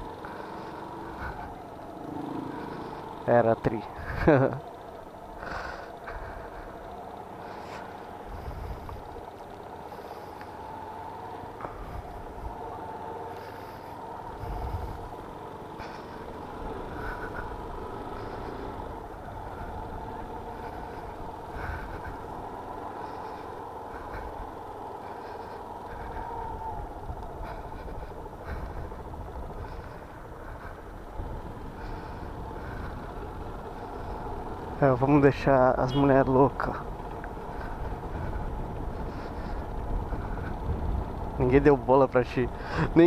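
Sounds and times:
motorcycle engine running: 0.0s - 43.0s
wind rumbling on microphone: 14.4s - 15.1s, 25.9s - 34.7s, 36.5s - 41.5s.

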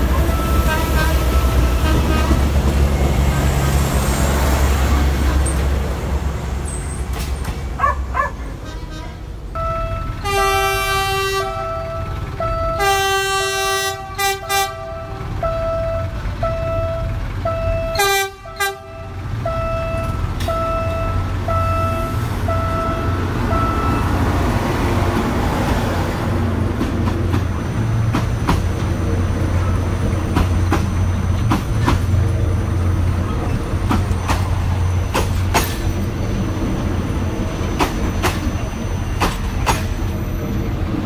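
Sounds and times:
train rumbling past: 0.0s - 41.0s
locomotive horn blasts: 0.1s - 2.6s, 8.5s - 24.2s
level crossing signal beeping: 0.2s - 2.1s, 9.5s - 10.2s, 11.5s - 12.9s, 14.4s - 24.5s
train wheels clacking: 26.6s - 36.7s, 37.4s - 40.8s.

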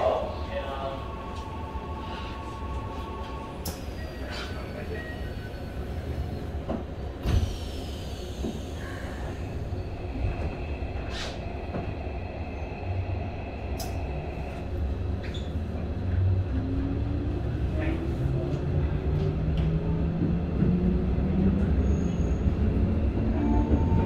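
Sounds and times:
train car equipment hum: 0.0s - 24.0s
faint clicks: 13.7s - 14.0s.

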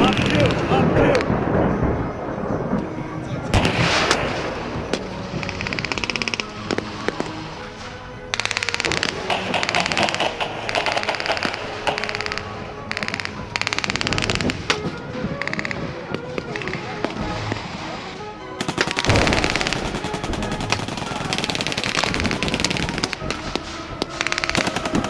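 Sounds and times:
machine gun bursts: 0.0s - 0.8s, 8.4s - 14.6s, 18.6s - 23.4s, 24.1s - 25.0s
single rifle shots: 3.5s - 14.8s.

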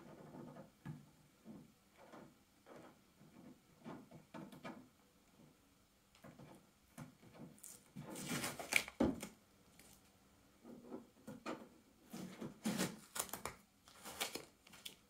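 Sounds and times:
packing tape ripping off glass: 7.6s - 9.3s, 12.7s - 15.0s.

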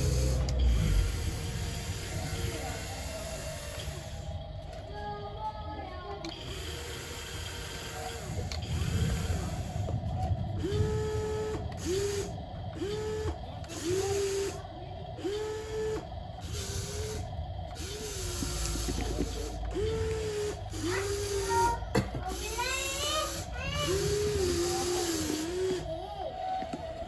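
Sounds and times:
toy excavator motors whirring: 0.0s - 27.0s.

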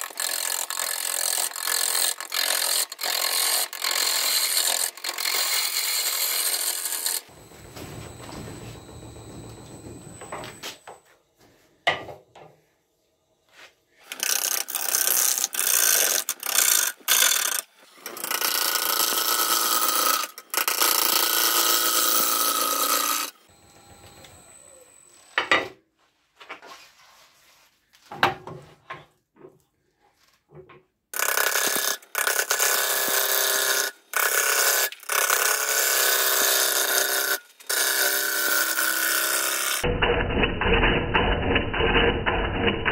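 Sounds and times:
wood lathe running: 0.0s - 10.9s, 14.0s - 25.5s, 31.2s - 39.9s.

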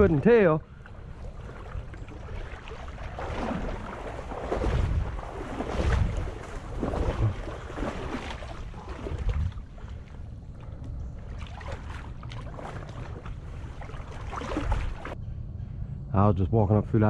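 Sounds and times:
low microphone rumble: 0.0s - 11.4s
footsteps wading through water: 0.0s - 15.2s.

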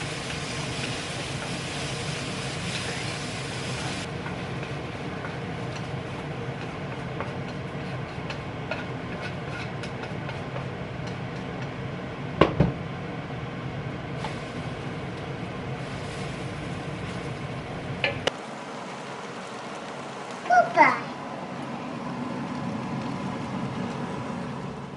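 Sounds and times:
utensils clicking against pan: 6.6s - 11.7s.

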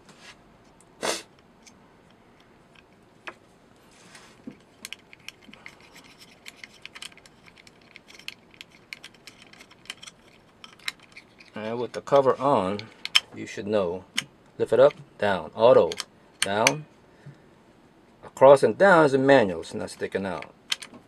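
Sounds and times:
light clicks and scraping: 1.6s - 13.5s.

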